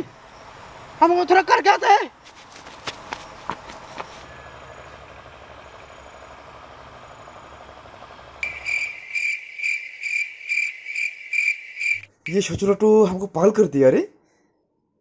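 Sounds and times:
cricket chirping: 4.3 - 12.5.

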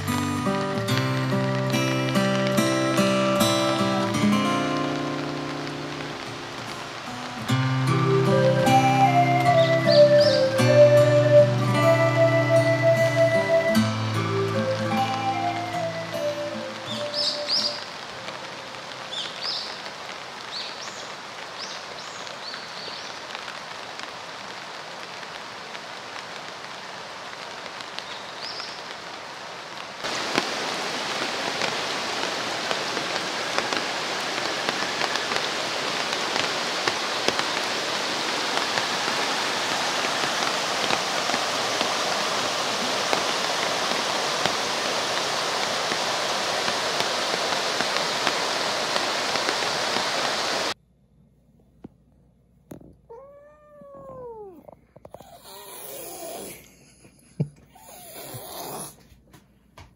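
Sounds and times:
stream running over stones: 0.0 - 11.3, 13.2 - 50.8
rain falling in woodland: 0.0 - 50.8, 52.7 - 59.9
bird chirps: 9.5 - 10.6, 16.8 - 17.8.

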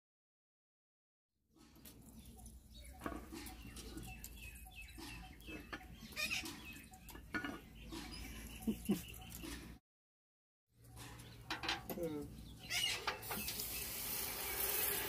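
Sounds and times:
chickens clucking: 1.8 - 9.8.

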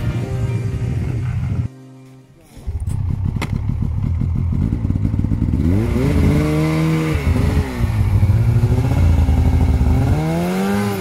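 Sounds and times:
snowmobile engine revving: 2.6 - 11.0.

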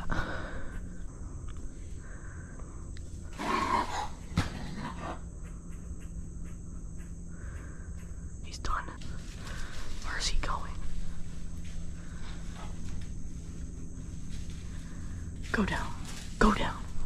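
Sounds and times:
raccoon growling: 0.0 - 8.3.

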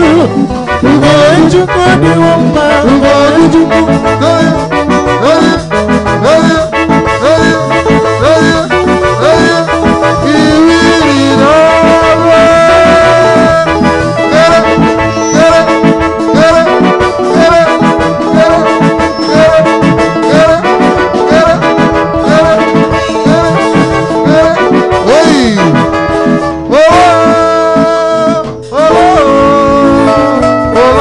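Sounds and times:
drum kit: 0.0 - 31.0
electronic keyboard melody: 0.0 - 31.0
live band music: 0.0 - 31.0.

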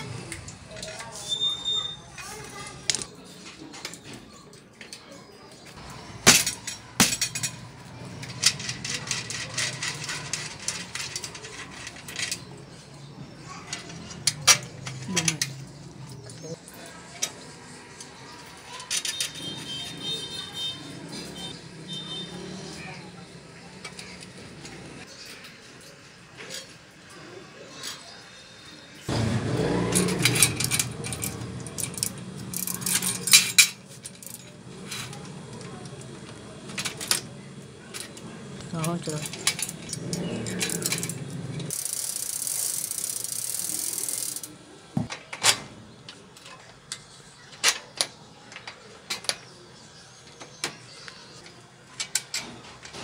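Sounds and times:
bicycle wheel metal clinks and rattles: 0.2 - 4.1, 5.8 - 16.4, 18.6 - 20.7, 29.1 - 37.3, 37.9 - 45.3
bicycle wheel clicking against fork: 29.1 - 35.0, 38.8 - 44.6.

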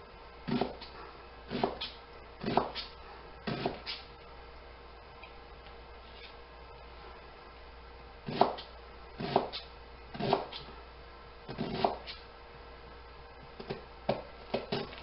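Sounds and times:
knife chopping on cutting board: 1.5 - 1.8, 2.4 - 2.8, 8.3 - 9.6, 10.2 - 10.6, 11.5 - 12.1.

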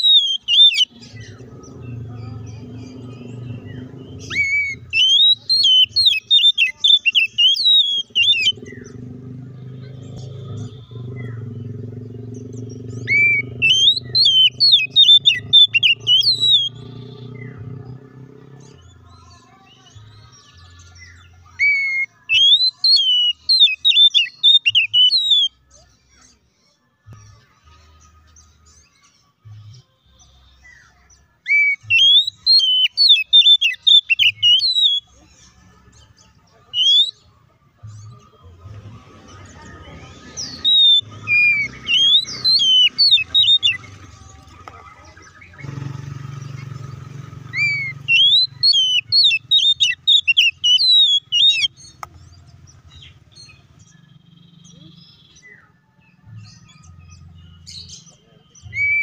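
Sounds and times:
bird singing whistled phrases: 0.0 - 0.9, 4.2 - 8.6, 13.0 - 16.8, 21.6 - 25.6, 31.4 - 35.1, 36.7 - 37.2, 40.3 - 43.9, 47.5 - 52.0, 56.5 - 59.0.

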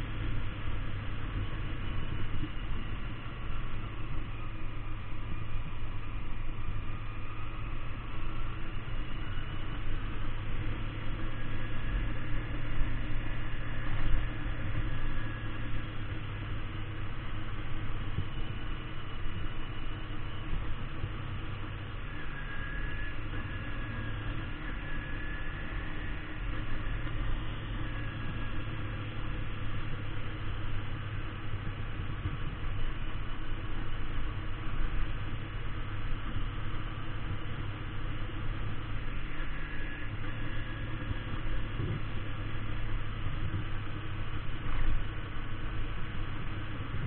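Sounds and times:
motorcycle engine running: 0.0 - 47.0
wind noise on microphone: 38.7 - 47.0.

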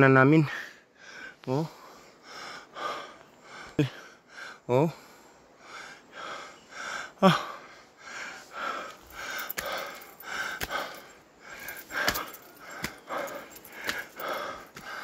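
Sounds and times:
man panting hard: 0.4 - 15.0
man gasping: 6.2 - 15.0.

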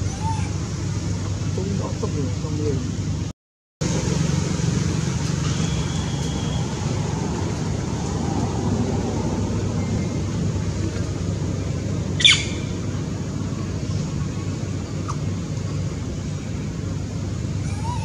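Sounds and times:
animal squawking call: 12.2 - 12.7, 17.6 - 18.0.

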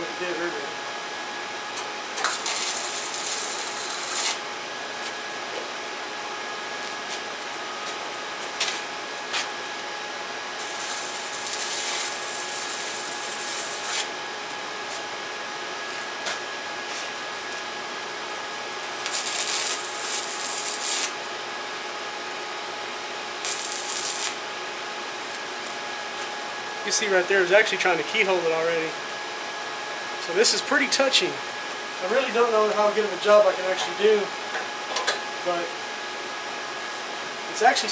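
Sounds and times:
steady hum with faint whine: 0.0 - 37.9
crackling sizzling welding arc: 1.7 - 5.0, 10.5 - 15.0, 17.5 - 21.3, 23.3 - 24.5
welding rod scratching: 2.2 - 4.4, 10.6 - 14.1, 19.0 - 21.1, 23.4 - 24.4.

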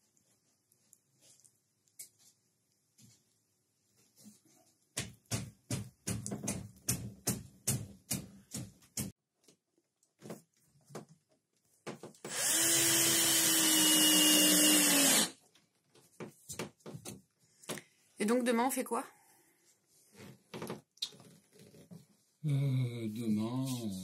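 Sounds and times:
cordless drill whining into wood: 12.2 - 15.4.

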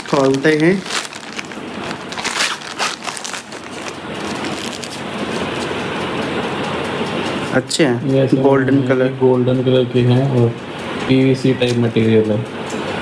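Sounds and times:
mats sliding out of plastic sleeve: 0.0 - 5.4
plastic packaging crinkling: 0.0 - 5.9.

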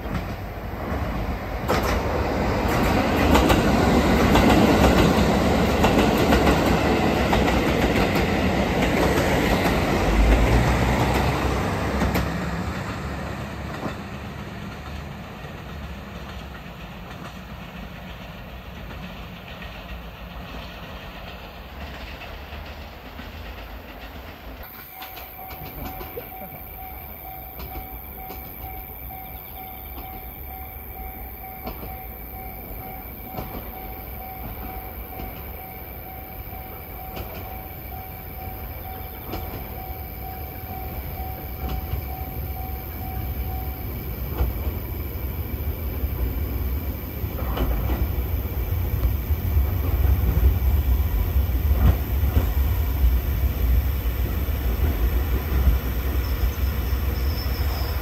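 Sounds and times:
railcar engine rumble: 0.0 - 58.0
wheels clacking over rail joints: 0.0 - 58.0
level crossing bell ringing: 24.8 - 44.1.

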